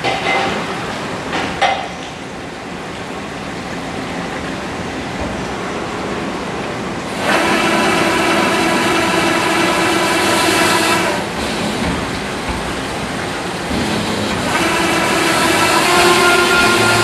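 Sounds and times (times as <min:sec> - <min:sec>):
honing machine grinding with whine: 0:07.1 - 0:17.0.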